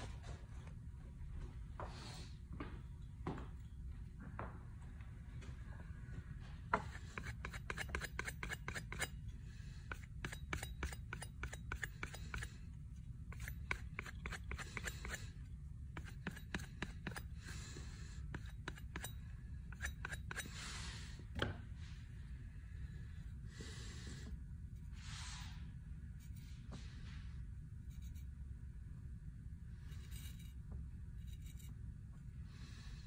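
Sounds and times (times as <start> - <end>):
knife scraping on whetstone: 6.8 - 9.2, 9.9 - 12.6, 13.3 - 15.4, 16.0 - 17.4, 18.3 - 20.7, 29.9 - 30.6.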